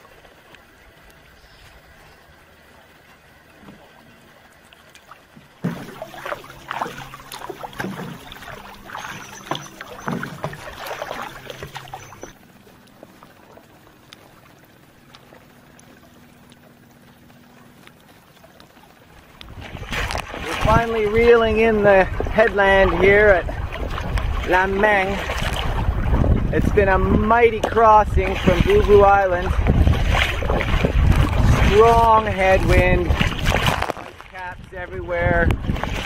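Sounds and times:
low hum: 0.0 - 36.0
paddle splashing water: 0.0 - 36.0.

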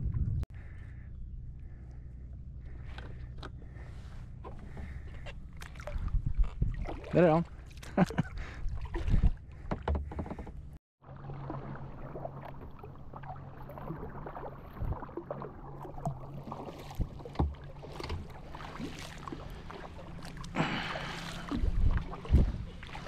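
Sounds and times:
steady low hum: 0.0 - 6.8
paddle splashing water: 2.7 - 23.0.

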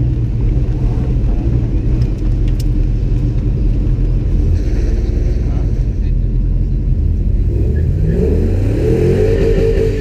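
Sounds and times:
car engine idling: 0.0 - 7.6.

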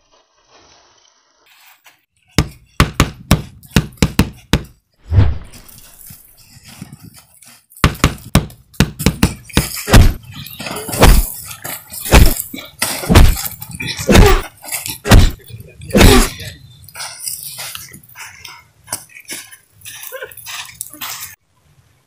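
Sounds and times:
punch sound effects: 5.1 - 5.5, 9.9 - 10.2, 11.0 - 11.3, 12.1 - 12.4, 13.1 - 13.4, 15.1 - 15.4.

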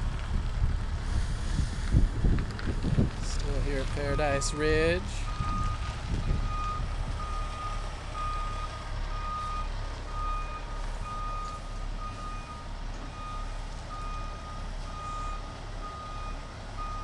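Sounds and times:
low rumble: 0.0 - 15.4
vehicle reversing alarm beeping: 3.6 - 17.0.

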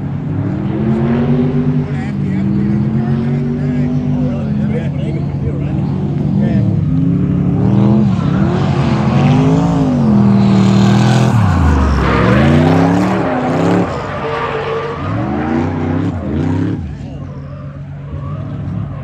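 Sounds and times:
car engine revving: 0.0 - 19.0
tire squeal: 7.9 - 19.0.

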